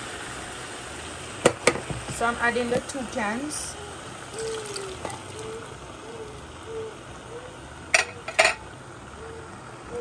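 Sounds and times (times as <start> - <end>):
knocks against pan: 1.4 - 2.2
beans and liquid poured into pan: 4.2 - 5.8.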